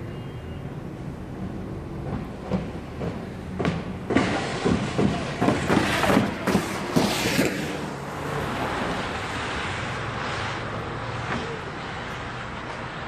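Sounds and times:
vehicle driving past: 0:01.2 - 0:13.0
sharp knocks and clatters: 0:02.0 - 0:07.6.

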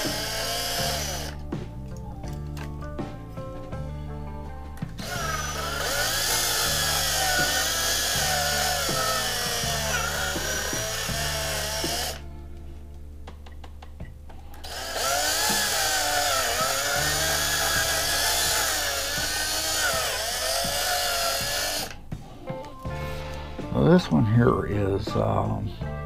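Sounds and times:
electric drill drilling metal: 0:00.0 - 0:01.4, 0:05.0 - 0:12.2, 0:14.6 - 0:22.0.

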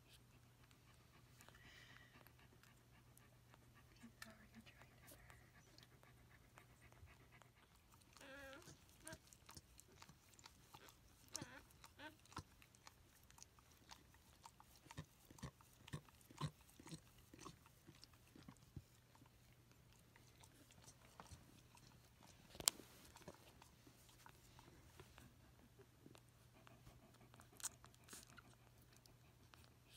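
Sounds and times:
dog licking puppies: 0:00.0 - 0:29.9
dog whining: 0:08.0 - 0:12.8.

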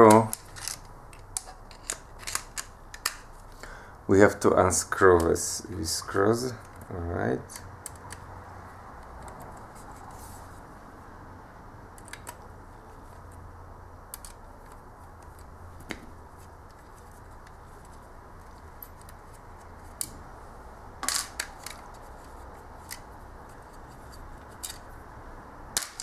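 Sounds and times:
screwdriver clicks and metallic taps: 0:12.0 - 0:12.4, 0:14.1 - 0:16.0.

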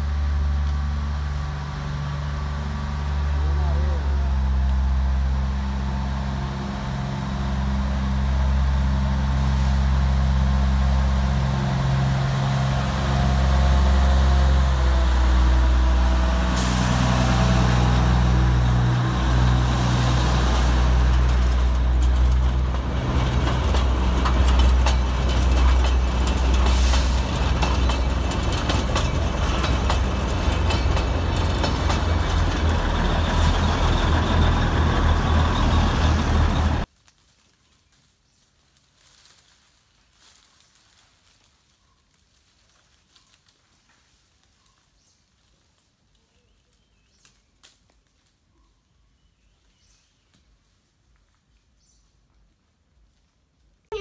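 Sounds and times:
diesel locomotive engine rumble: 0:00.0 - 0:36.9
coaches rattling over rails: 0:05.8 - 0:36.9.

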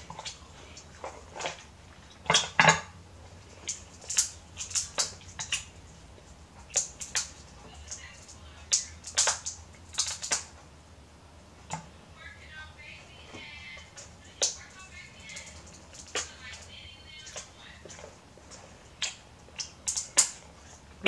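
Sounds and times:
crab shells cracking and snapping: 0:03.6 - 0:05.8, 0:06.6 - 0:10.6, 0:15.2 - 0:16.5, 0:17.2 - 0:20.5.

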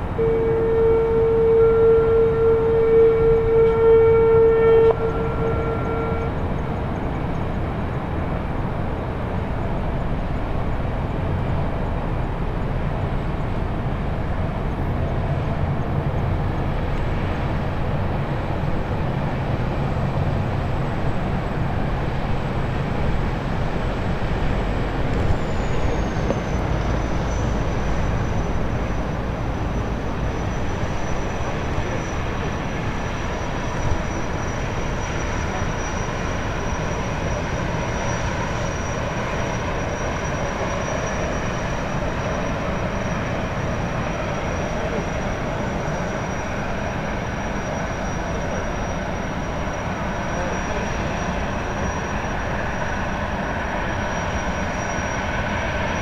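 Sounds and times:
loud horn blast: 0:00.0 - 0:06.8
boat engine rushing and rumbling: 0:00.0 - 0:56.0.

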